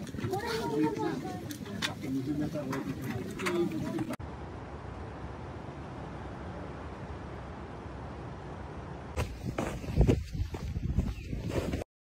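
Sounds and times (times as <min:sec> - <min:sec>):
footsteps on packed snow: 0:09.2 - 0:11.8.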